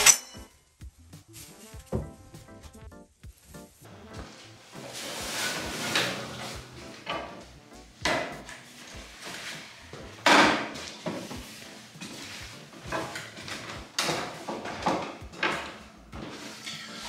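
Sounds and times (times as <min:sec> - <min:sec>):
wooden ladder knocks and clatter: 0:04.8 - 0:07.4, 0:08.0 - 0:16.7.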